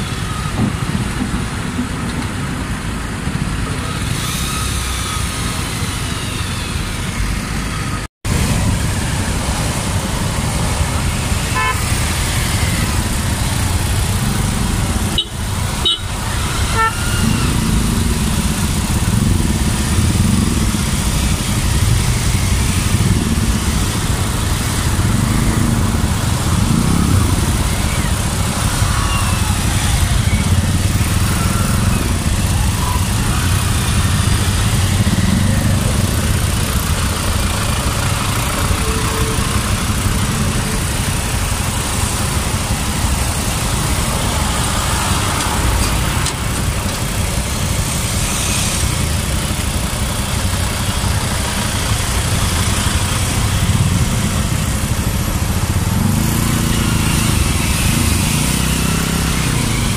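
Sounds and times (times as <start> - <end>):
vehicle engines in traffic: 0.0 - 59.9
motorcycle engine idling: 48.9 - 58.0.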